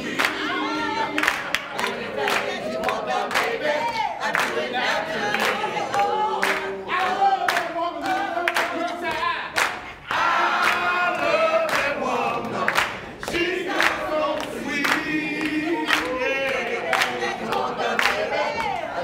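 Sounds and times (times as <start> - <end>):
group of voices singing: 0.0 - 19.0
hand claps: 0.2 - 0.4, 1.2 - 4.6, 5.3 - 9.9, 10.6 - 18.9.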